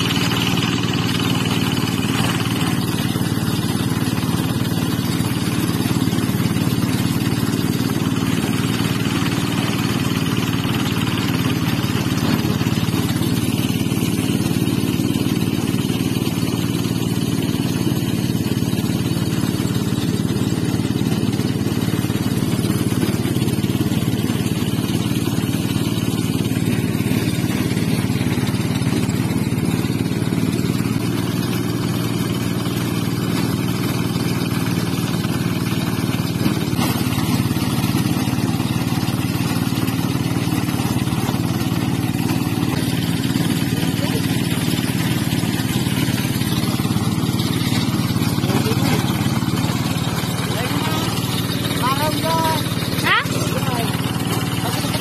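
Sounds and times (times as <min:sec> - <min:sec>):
rice thresher engine running: 0:00.0 - 0:55.0.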